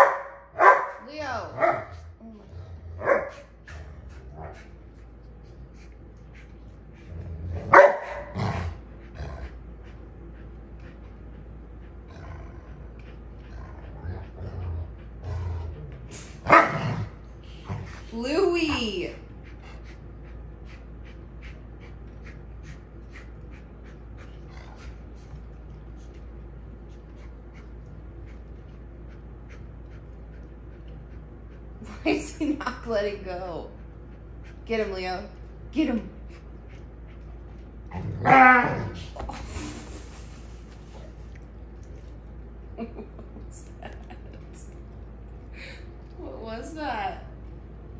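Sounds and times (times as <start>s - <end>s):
dog barking: 0.0s - 1.0s, 1.6s - 1.9s, 3.0s - 3.4s, 7.7s - 8.4s, 16.5s - 16.8s
dog panting: 0.0s - 47.9s.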